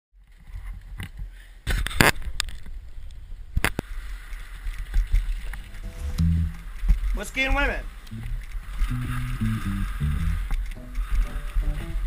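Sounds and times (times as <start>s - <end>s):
wind rumble on microphone: 4.6s - 7.2s.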